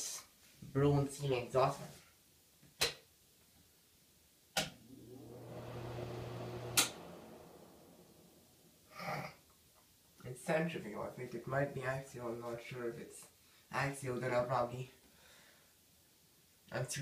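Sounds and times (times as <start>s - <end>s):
exhaust fan motor humming: 4.6s - 9.3s.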